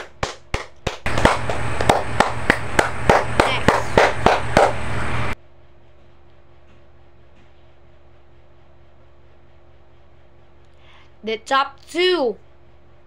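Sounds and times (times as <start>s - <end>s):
hand clapping: 0.0s - 4.8s.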